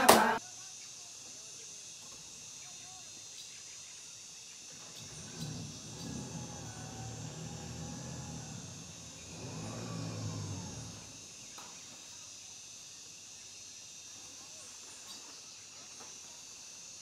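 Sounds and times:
insects chorus: 0:00.0 - 0:17.0
low drone: 0:04.8 - 0:11.5.

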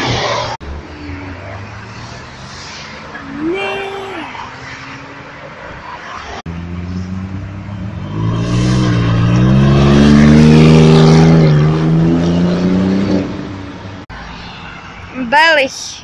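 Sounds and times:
sports car accelerating past: 0:06.5 - 0:13.7.

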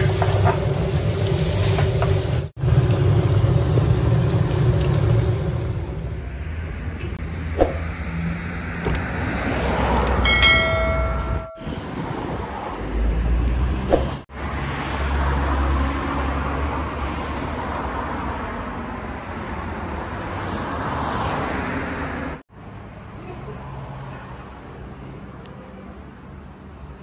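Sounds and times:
road traffic rumble: 0:00.0 - 0:27.0
sharp clicks: 0:08.8 - 0:09.1, 0:09.9 - 0:10.2.

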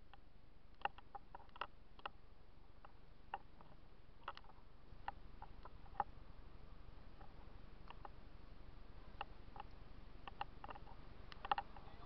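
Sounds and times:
light ticks and clicks: 0:00.0 - 0:02.2, 0:09.1 - 0:12.0.

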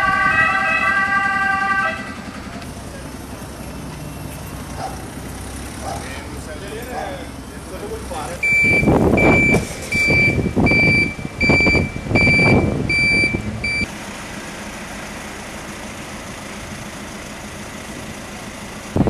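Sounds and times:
reversing alarm beeping: 0:08.4 - 0:13.9.

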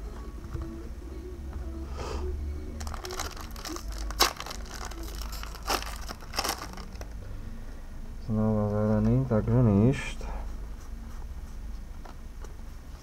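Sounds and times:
foil wrapper crinkling and tearing: 0:02.8 - 0:07.2.

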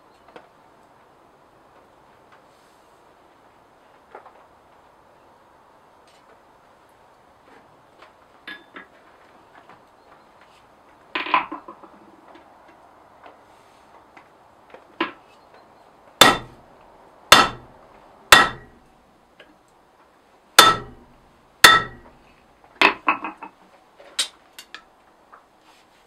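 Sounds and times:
hammer striking steel rod: 0:16.2 - 0:16.6, 0:17.3 - 0:17.7, 0:18.3 - 0:18.8, 0:20.6 - 0:22.2.

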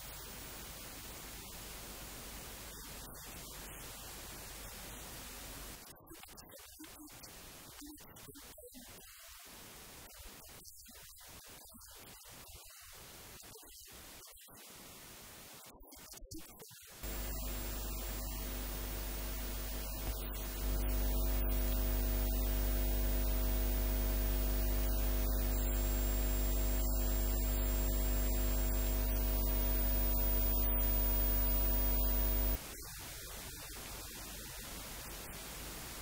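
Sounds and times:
faint hiss: 0:00.0 - 0:36.0
electrical mains hum: 0:17.0 - 0:32.6.

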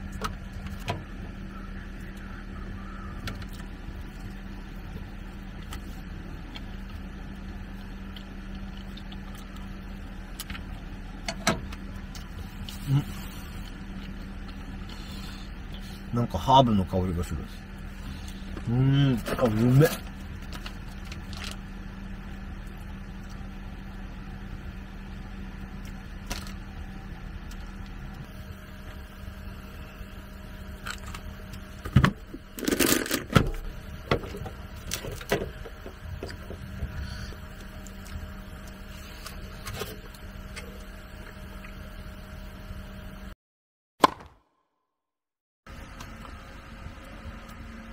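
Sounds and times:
steady low hum: 0:00.0 - 0:43.4, 0:45.7 - 0:47.9.

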